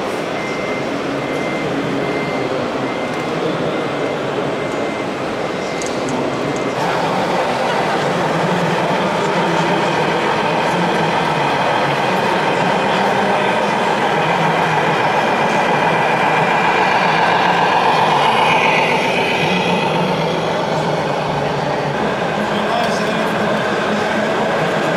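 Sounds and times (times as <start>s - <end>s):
din of a large hall: 0.0s - 24.9s
high whine: 3.3s - 24.9s
model truck engine rumble: 6.8s - 24.9s.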